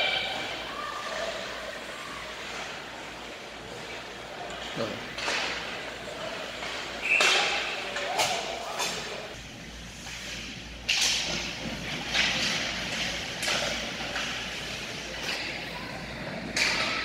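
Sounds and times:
hockey sticks and puck clacking: 2.4 - 9.2, 9.9 - 15.6, 16.4 - 17.0
faint voices: 12.8 - 17.0.

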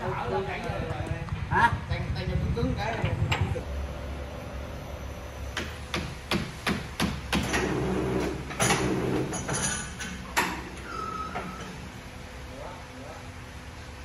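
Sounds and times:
sharp knocks: 5.6 - 7.7.

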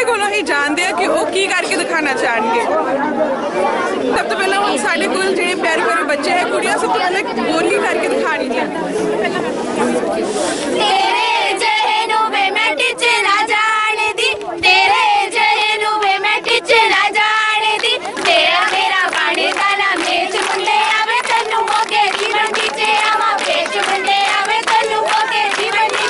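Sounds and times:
girls singing folk songs: 10.8 - 26.0
hand clapping: 17.8 - 26.0.

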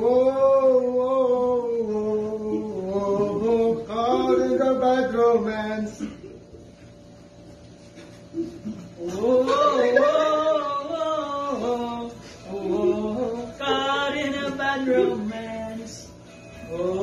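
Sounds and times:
voices singing a chant: 9.0 - 16.1.

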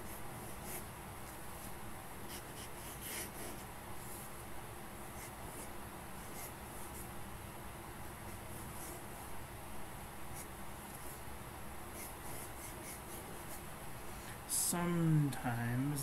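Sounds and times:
pen nib scratching paper: 0.0 - 0.9, 2.3 - 3.7, 5.2 - 7.1, 12.0 - 13.6.

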